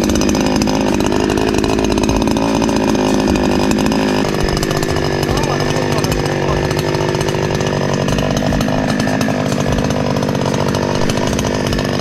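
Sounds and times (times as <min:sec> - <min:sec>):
chainsaw engine running: 0:00.0 - 0:12.0.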